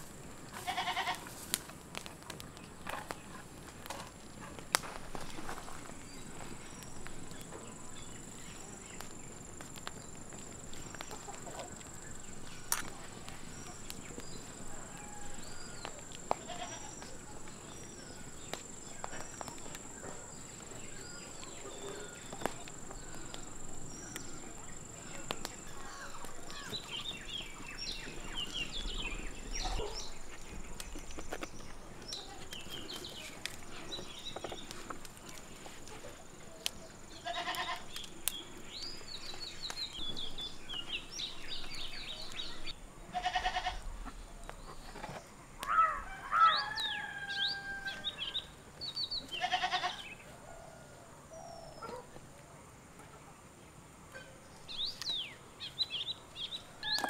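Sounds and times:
small birds chirping: 0.0 - 50.7, 53.0 - 57.0
goat bleating: 0.6 - 1.3, 37.2 - 37.8, 43.1 - 43.8, 49.4 - 50.0.

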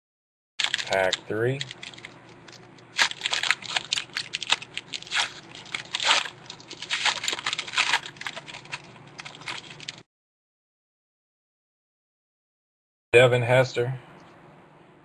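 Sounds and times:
foil wrapper tearing and crinkling: 0.6 - 10.0.

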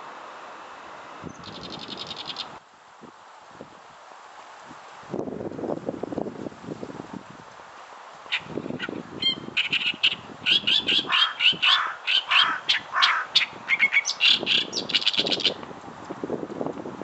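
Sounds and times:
reed warbler singing: 1.2 - 2.6, 8.3 - 15.6.

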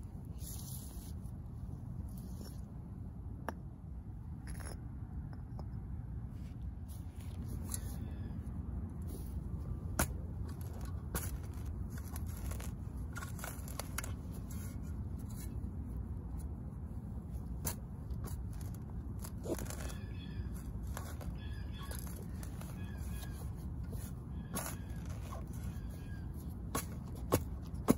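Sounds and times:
steady low rumble: 0.0 - 27.9
grass roots tearing and rustling: 18.3 - 23.5.

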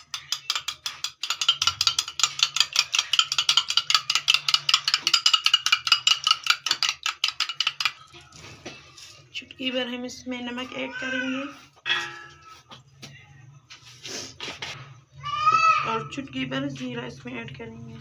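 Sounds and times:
metal spoon clinking against glass bowl: 0.0 - 8.2.

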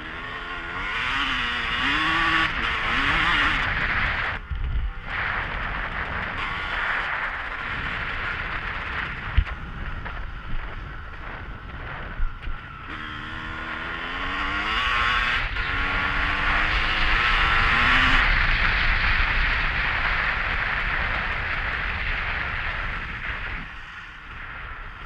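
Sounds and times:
road and wind noise: 0.0 - 25.0.

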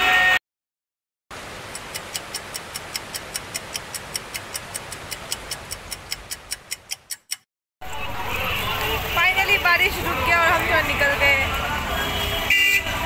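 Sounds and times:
clock ticking fast: 1.6 - 7.4.

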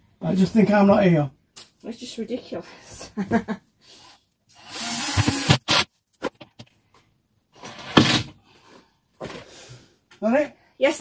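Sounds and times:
cordless drill driving screws: 4.5 - 5.9.

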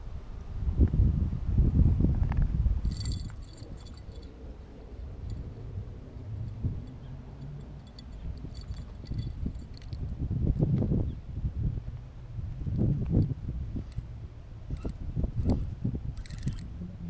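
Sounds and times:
wind rumble on microphone: 0.0 - 17.0
fishing reel ticking: 2.9 - 4.3, 14.8 - 16.7.

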